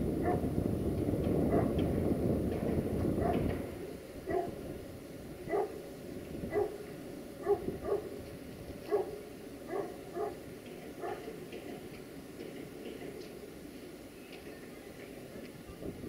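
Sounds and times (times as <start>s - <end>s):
dog barking: 0.2s - 0.5s, 1.5s - 1.8s, 3.2s - 3.5s, 4.3s - 4.6s, 5.5s - 5.8s, 6.5s - 6.8s, 7.4s - 8.1s, 8.9s - 10.4s, 11.0s - 11.4s.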